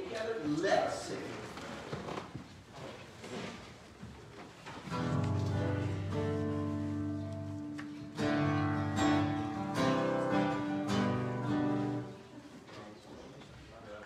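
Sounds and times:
guitar strumming chords: 0:04.9 - 0:12.3.

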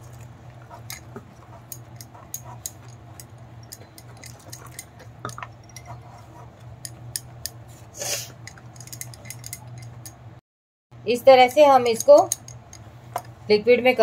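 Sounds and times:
whisk scraping ceramic bowl: 0:00.0 - 0:07.9
low steady hum: 0:00.0 - 0:10.4.

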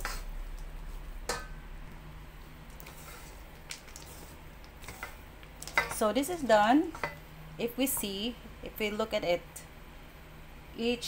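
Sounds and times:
low hum: 0:00.0 - 0:03.6.

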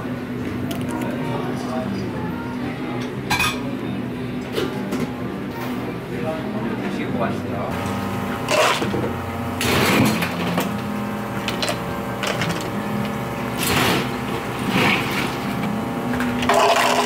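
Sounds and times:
machine hum: 0:07.7 - 0:17.0.

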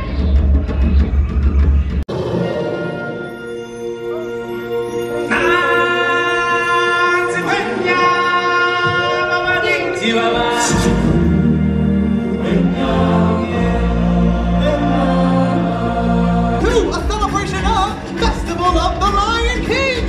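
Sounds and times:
choir singing long notes: 0:02.1 - 0:16.7.

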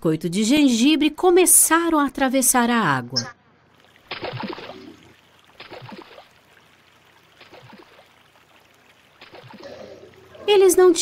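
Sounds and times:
cartoon water splashing: 0:03.7 - 0:11.0.

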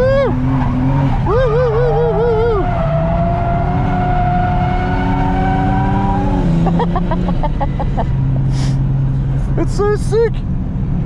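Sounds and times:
tire squeal: 0:00.0 - 0:06.4
turbocharged car engine revving: 0:00.0 - 0:09.8.

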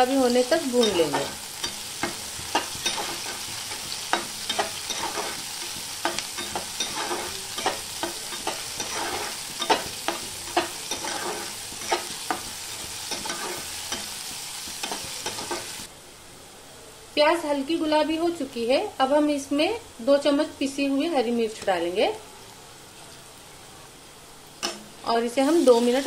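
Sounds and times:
onions sizzling in hot oil: 0:00.0 - 0:15.9, 0:17.1 - 0:26.0
spatula scraping and tapping pan: 0:00.8 - 0:15.8.

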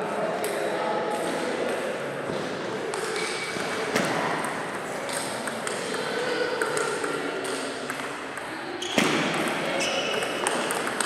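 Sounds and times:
sports hall room noise: 0:00.0 - 0:11.0
table tennis ball clicks: 0:09.4 - 0:11.0.

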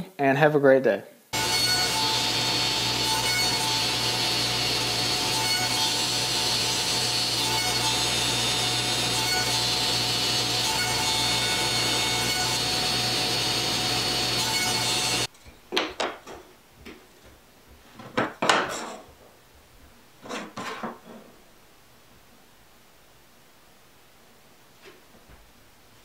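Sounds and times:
table saw running: 0:01.4 - 0:15.3
wooden strips clacking on bench: 0:15.7 - 0:17.0.

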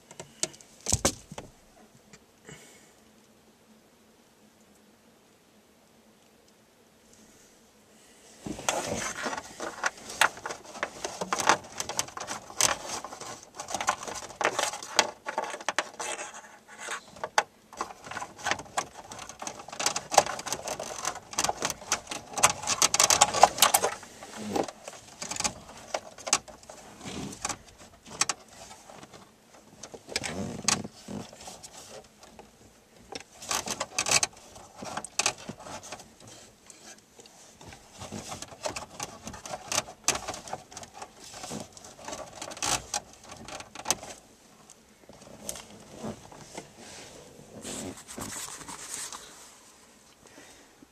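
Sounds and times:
rustling: 0:07.1 - 0:50.7
plastic and metal clicks and rattles: 0:16.9 - 0:24.0, 0:37.6 - 0:44.2.

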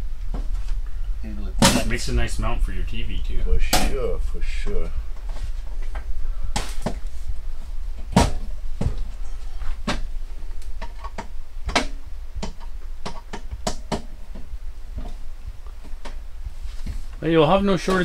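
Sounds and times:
panel cover clicks and knocks: 0:10.8 - 0:14.1.

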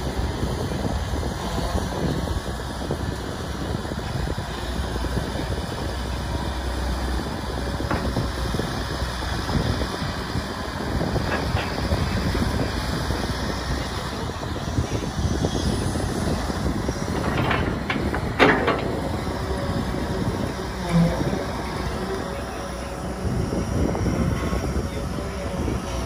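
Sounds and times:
hydraulic excavator running: 0:00.0 - 0:26.0
excavator bucket knocks: 0:17.1 - 0:19.3.

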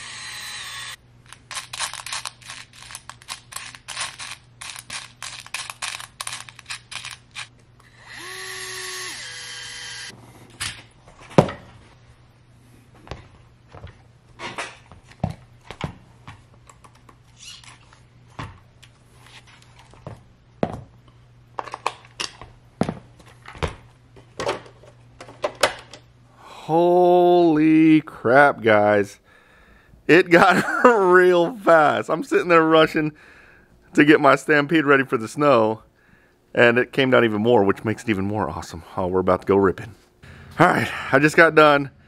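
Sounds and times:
power screwdriver whirring: 0:00.0 - 0:02.3, 0:06.6 - 0:10.1.

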